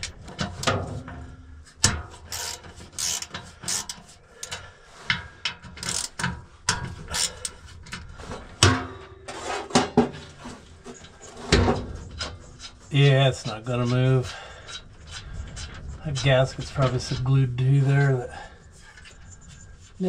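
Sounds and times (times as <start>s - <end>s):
ratchet wrench clicking: 2.3s - 4.6s, 5.8s - 6.3s, 7.1s - 7.6s.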